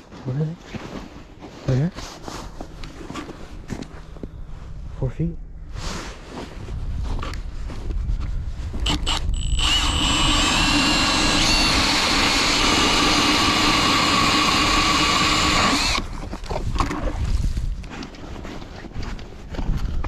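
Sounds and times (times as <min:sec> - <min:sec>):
power ice auger drilling: 0:08.8 - 0:17.2.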